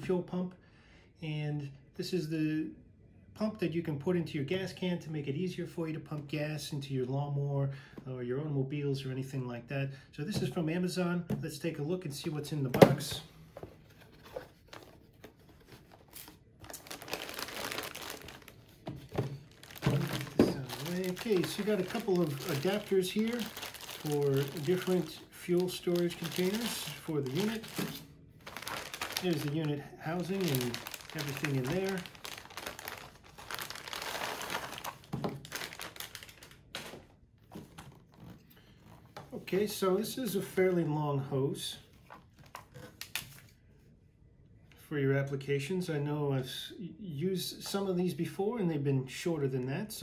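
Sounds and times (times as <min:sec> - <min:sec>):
plastic packaging crinkling: 0:14.1 - 0:37.1.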